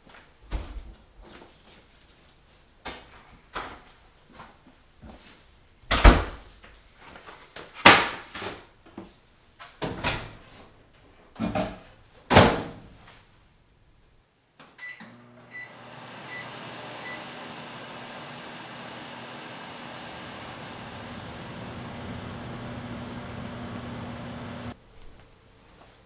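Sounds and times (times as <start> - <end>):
keypad beeps: 14.8 - 15.7
microwave oven humming: 15.0 - 24.8.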